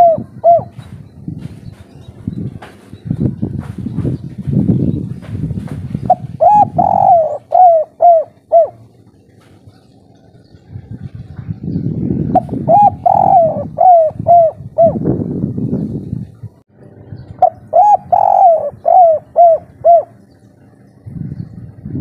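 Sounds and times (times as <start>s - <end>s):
dove cooing: 0.0s - 2.1s, 5.9s - 11.1s, 12.2s - 15.1s, 17.3s - 20.8s
low rumbling noise: 0.0s - 22.0s.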